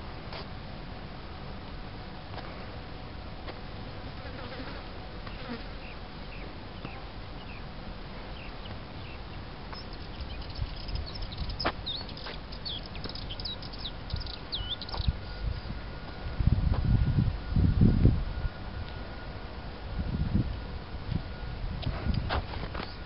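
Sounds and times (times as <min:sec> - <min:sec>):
steady low rumble: 0:00.0 - 0:23.0
insects buzzing: 0:03.4 - 0:17.6.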